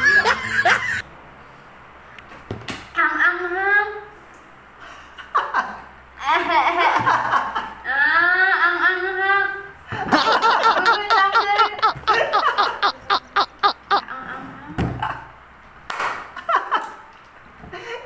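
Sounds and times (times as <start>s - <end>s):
man and woman laughing: 0.0s - 1.0s, 10.0s - 14.0s.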